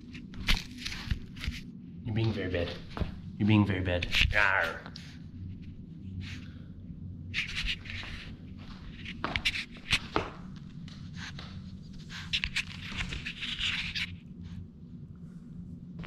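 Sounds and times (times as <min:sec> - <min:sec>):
puppy scuffling and scraping: 0:07.3 - 0:14.1.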